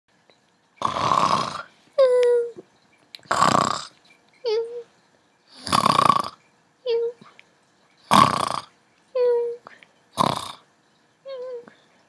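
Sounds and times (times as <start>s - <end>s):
cartoon rasping snore: 0.8s - 1.7s, 3.3s - 3.9s, 5.5s - 6.4s, 8.1s - 8.7s, 10.2s - 10.6s.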